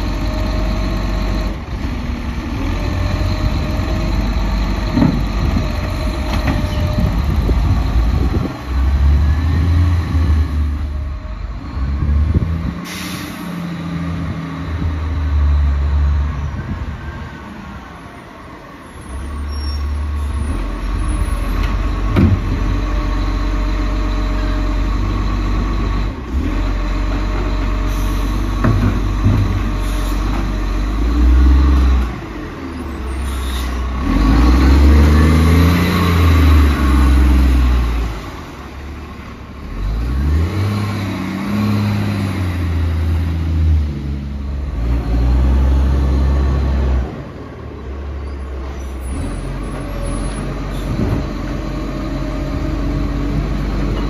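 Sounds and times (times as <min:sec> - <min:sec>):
air brake hiss: 0:12.8 - 0:13.7, 0:29.8 - 0:30.3, 0:33.1 - 0:33.9
garbage truck engine revving: 0:20.3 - 0:54.0.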